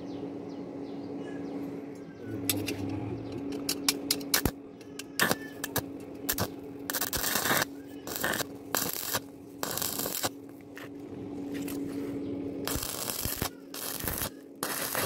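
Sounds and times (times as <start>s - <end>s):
steady low hum: 0.0s - 15.0s
welding arc crackling hiss: 5.2s - 10.9s, 12.6s - 15.0s.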